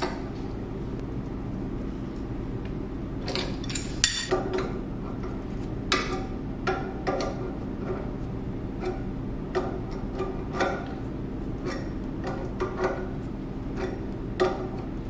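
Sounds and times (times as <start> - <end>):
low machine hum: 0.0 - 15.0
wrenches clinking on pipe fittings: 3.3 - 4.4.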